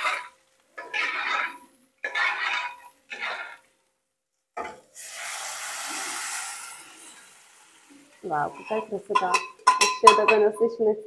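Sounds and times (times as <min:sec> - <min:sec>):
metal spoon scraping pot: 0:00.0 - 0:03.7, 0:08.3 - 0:10.7
lentils sizzling in hot oil: 0:00.0 - 0:03.8, 0:04.6 - 0:10.0.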